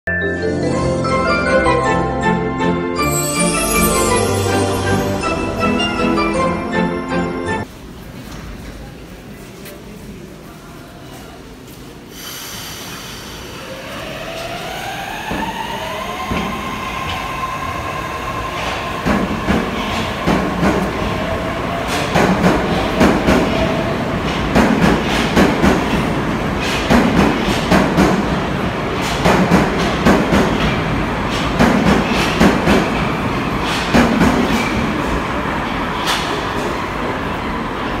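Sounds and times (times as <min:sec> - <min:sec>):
train wheels rumbling on rails: 0:12.1 - 0:38.0.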